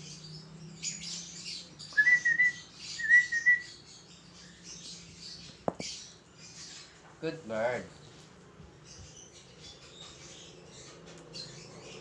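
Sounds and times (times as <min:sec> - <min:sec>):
sharp tap: 0:05.6 - 0:05.9.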